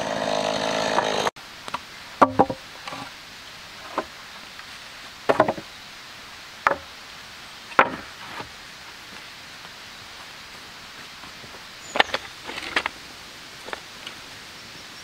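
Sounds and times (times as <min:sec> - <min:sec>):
wooden boards knocking together: 0:02.2 - 0:03.1, 0:05.3 - 0:05.7, 0:06.6 - 0:06.9, 0:07.8 - 0:08.5.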